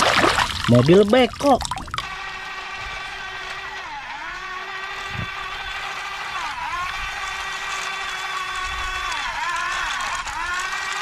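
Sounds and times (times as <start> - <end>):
toy excavator motors whining: 2.0 - 11.0.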